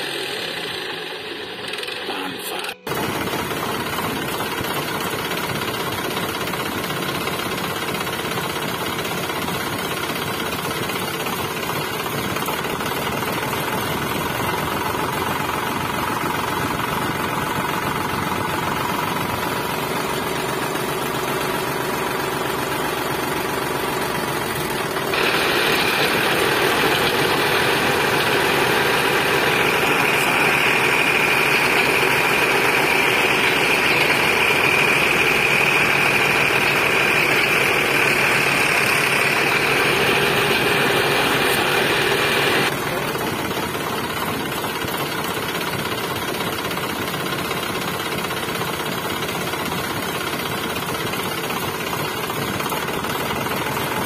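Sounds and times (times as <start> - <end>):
small motor and gears running: 0.0 - 54.0
high whine: 14.5 - 43.1.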